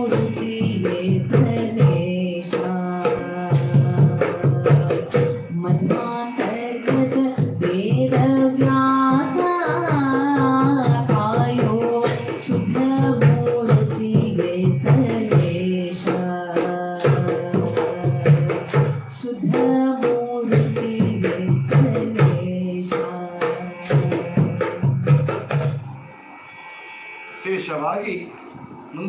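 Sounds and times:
woman singing: 0:00.0 - 0:25.5
steady drum beat: 0:00.0 - 0:26.1.

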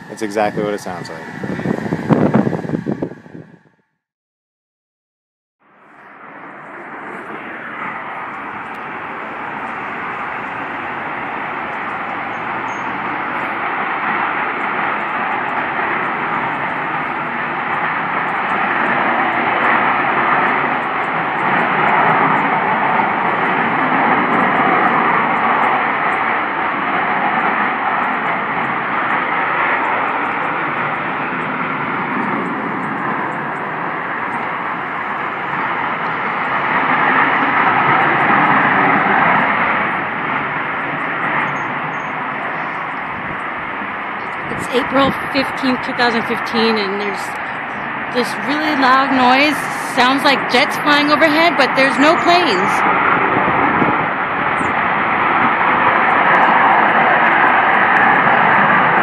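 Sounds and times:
loud rushing roar from sky: 0:00.0 - 0:04.0, 0:05.6 - 0:59.0.

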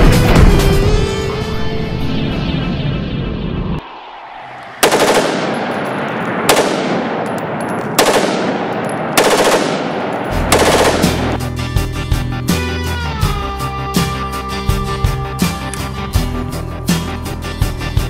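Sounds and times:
rifle firing rapid bursts: 0:04.8 - 0:05.6, 0:06.5 - 0:07.0, 0:08.0 - 0:11.4.

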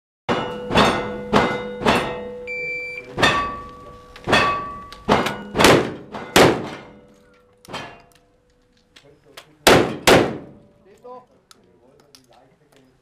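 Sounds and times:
steel plates ringing: 0:00.3 - 0:02.5, 0:03.1 - 0:08.1
gunshots: 0:04.3 - 0:07.0, 0:09.6 - 0:10.7.

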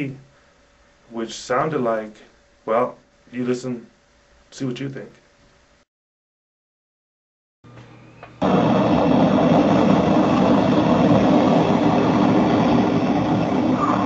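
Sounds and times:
loud steady hiss: 0:00.0 - 0:05.9, 0:08.3 - 0:14.0
low hum: 0:07.7 - 0:14.0.

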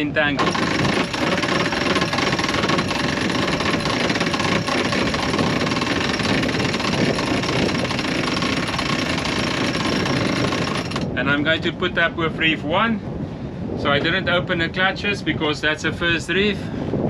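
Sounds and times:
electric winch rattling: 0:00.3 - 0:11.2.

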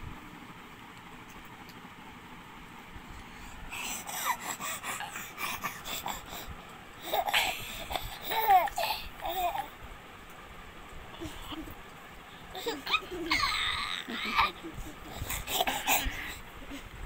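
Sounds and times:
baby giggling and babbling: 0:03.9 - 0:09.7, 0:11.1 - 0:11.8, 0:12.5 - 0:16.9.

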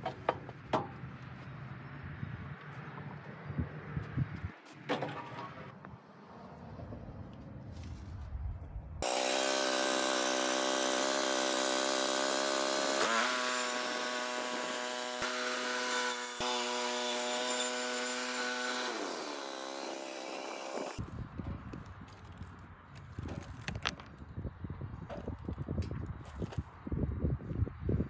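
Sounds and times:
bandsaw whine cutting wood: 0:09.0 - 0:21.0.

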